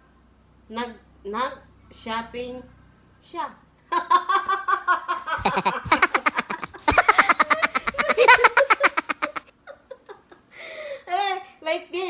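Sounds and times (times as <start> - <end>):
hearty laughter: 4.0 - 10.4.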